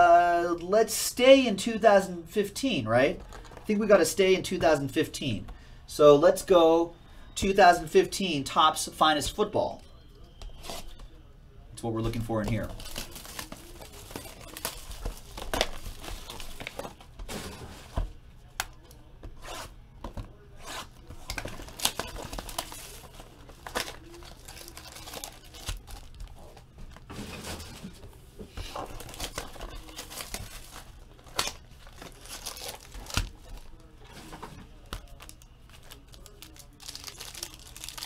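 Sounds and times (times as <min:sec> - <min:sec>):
card wrappers tearing and crinkling: 0:12.4 - 0:17.1, 0:20.5 - 0:27.1, 0:28.7 - 0:38.0.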